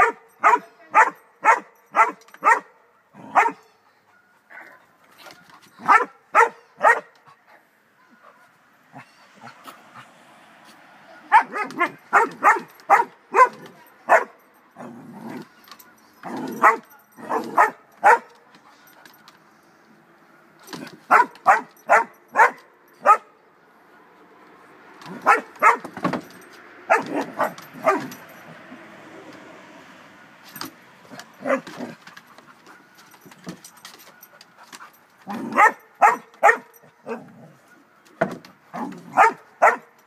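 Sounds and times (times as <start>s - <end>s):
dog barking: 0.0s - 3.6s, 5.8s - 7.2s, 11.2s - 14.4s, 16.4s - 18.4s, 21.1s - 23.3s, 25.1s - 25.9s, 26.9s - 28.2s, 31.2s - 31.7s, 35.3s - 37.4s, 38.7s - 39.9s.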